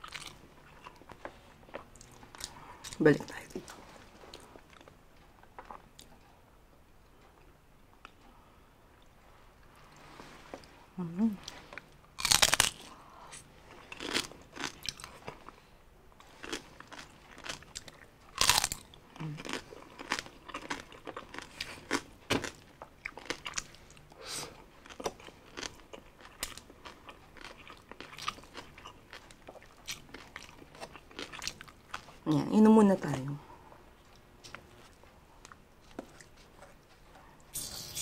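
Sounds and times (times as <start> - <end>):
chewing crispy pork skin: 0.0 - 3.1, 11.8 - 13.0, 13.7 - 15.6, 16.2 - 24.0, 24.6 - 32.3.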